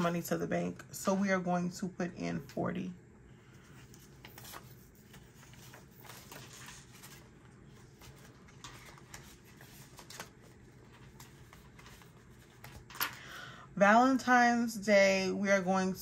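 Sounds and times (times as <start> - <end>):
soft paper crinkles: 3.4 - 13.2
paper banknotes rustling: 3.6 - 13.2.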